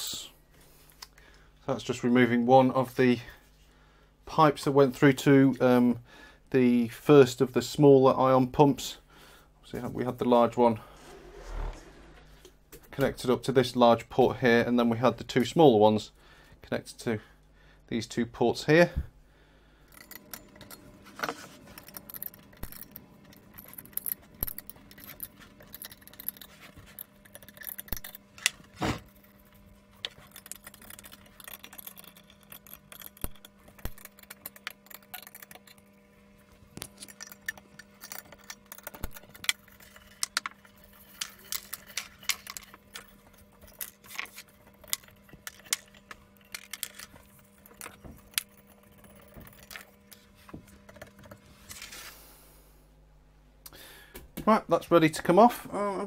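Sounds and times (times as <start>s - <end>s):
faint steady hum: 0.0s - 56.0s
metal nuts and washers clinking: 19.9s - 36.0s, 36.7s - 51.3s
spanner clicking on nuts: 29.2s - 36.0s.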